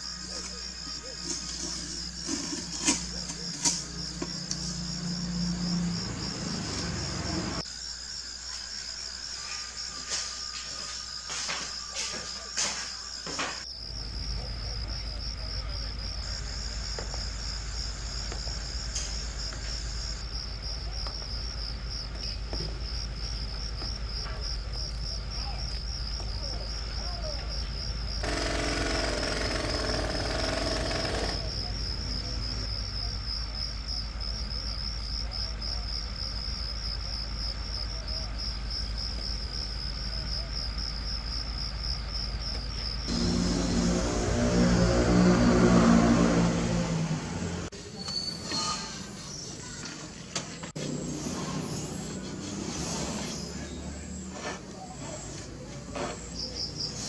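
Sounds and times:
high insect trill: 0:00.0 - 0:46.8, 0:47.7 - 0:54.3
low hum: 0:43.1 - 0:47.7.

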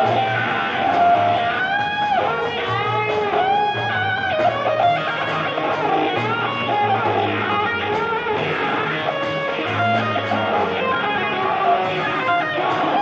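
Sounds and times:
bass line: 0:00.0 - 0:13.0
electric guitar lead: 0:00.0 - 0:13.0.

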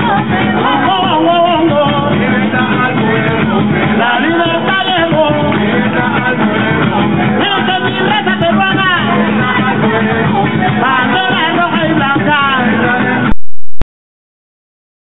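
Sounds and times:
latin dance music with singing: 0:00.0 - 0:13.8.

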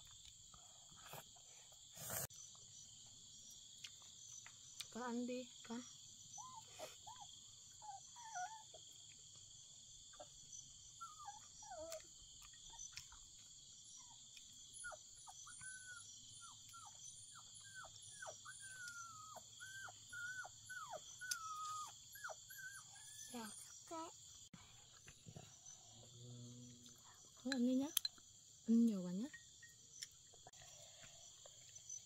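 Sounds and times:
insects chirring: 0:00.0 - 0:32.0
puppies whimpering: 0:10.2 - 0:12.0, 0:14.8 - 0:23.8.

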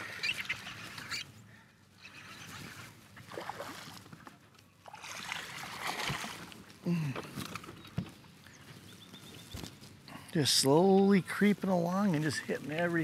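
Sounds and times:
water splashing and sloshing: 0:02.0 - 0:08.0.

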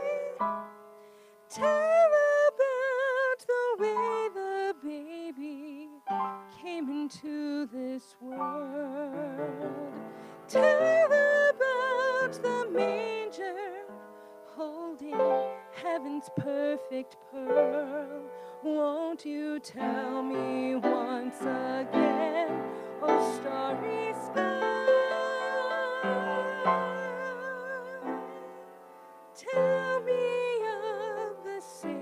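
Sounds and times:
woman singing with vibrato: 0:00.0 - 0:00.6, 0:01.5 - 0:32.0.

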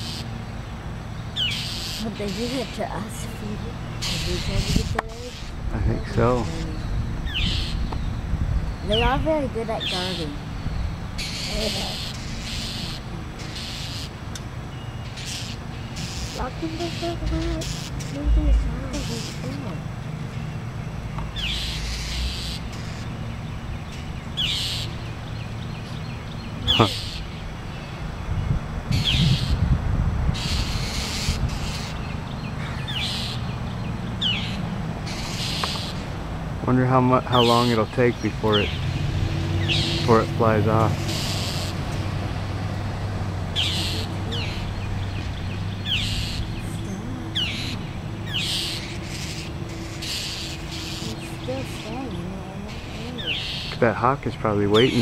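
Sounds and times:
harsh raspy bird calls: 0:00.0 - 0:55.0
low background rumble: 0:14.7 - 0:36.9.

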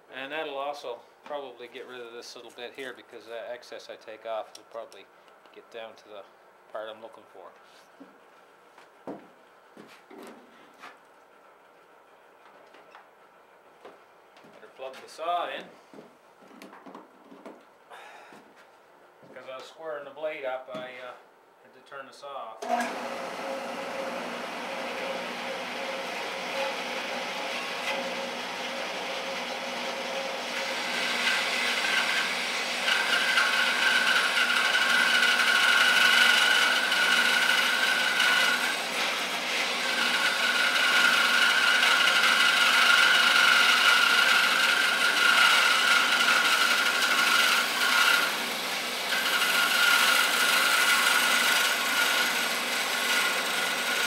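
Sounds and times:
bandsaw cutting wood: 0:22.6 - 0:54.0.

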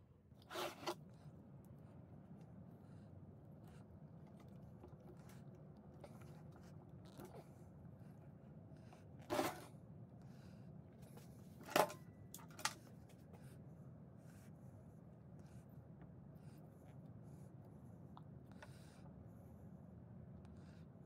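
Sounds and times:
short scrape: 0:00.4 - 0:01.0.

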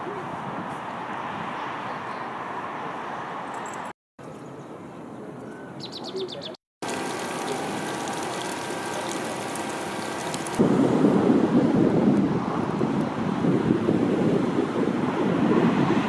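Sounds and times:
small bird chirping: 0:05.4 - 0:06.6
water spraying hiss: 0:06.8 - 0:10.9.

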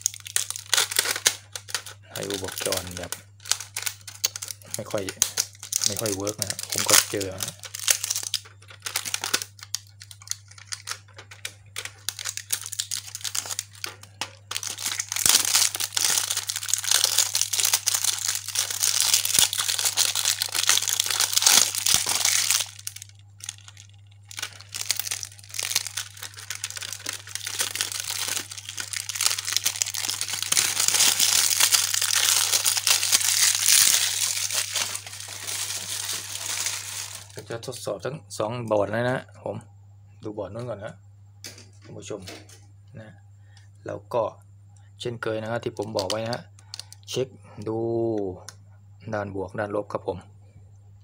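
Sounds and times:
crinkling handling noise: 0:00.0 - 0:37.8, 0:45.8 - 0:47.1.

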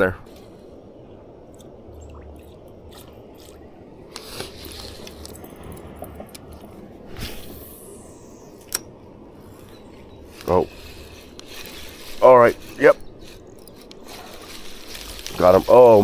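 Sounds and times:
water sloshing: 0:01.4 - 0:07.1.

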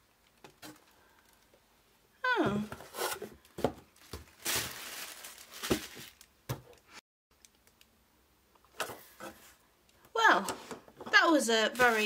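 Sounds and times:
tissue paper crinkling: 0:04.0 - 0:06.3, 0:11.7 - 0:12.0.

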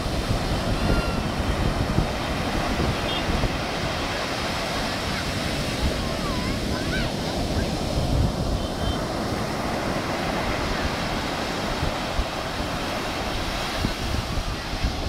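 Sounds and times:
sea surf breaking on beach: 0:00.0 - 0:15.0
wind buffeting microphone: 0:00.0 - 0:15.0.

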